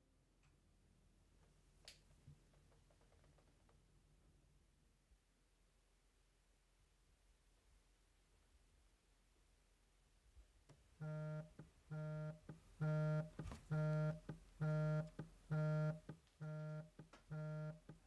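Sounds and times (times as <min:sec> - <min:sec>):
phone vibrating on desk: 0:11.0 - 0:18.0.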